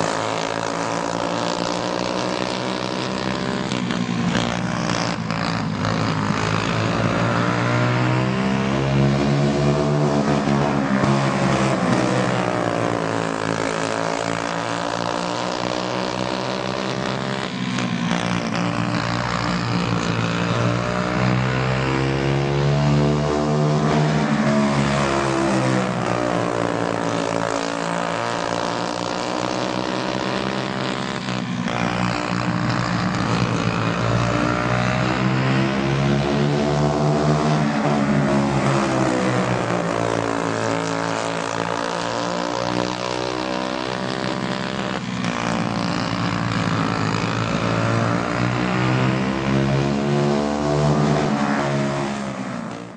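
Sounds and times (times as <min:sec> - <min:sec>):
kart engines racing: 0:00.0 - 0:52.9.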